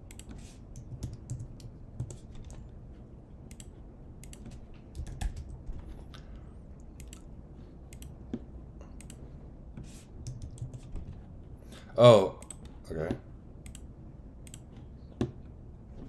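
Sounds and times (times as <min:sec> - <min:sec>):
keyboard typing: 0:00.0 - 0:02.8, 0:03.4 - 0:06.0, 0:10.2 - 0:11.2.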